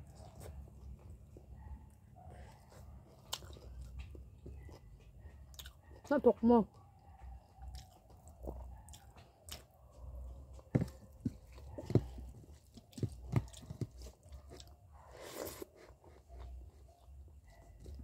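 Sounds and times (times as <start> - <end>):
person chewing with wet smacks: 0.0 - 1.5, 2.6 - 18.0.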